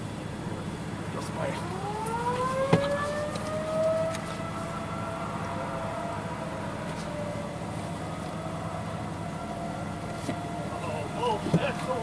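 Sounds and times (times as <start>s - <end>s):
warning siren winding up: 1.6s - 7.5s.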